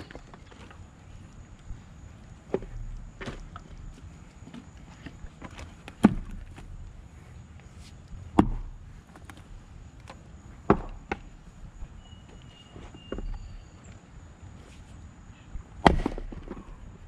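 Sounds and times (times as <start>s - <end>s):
axe chopping wood: 6.0s - 6.5s, 8.3s - 8.8s, 10.7s - 11.3s, 15.8s - 16.7s.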